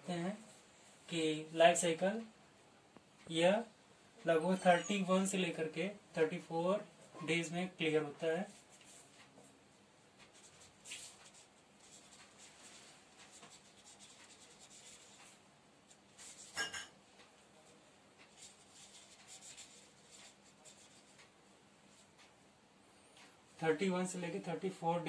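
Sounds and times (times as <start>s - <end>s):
marker scratching on paper: 10.2s - 16.7s, 18.2s - 21.3s.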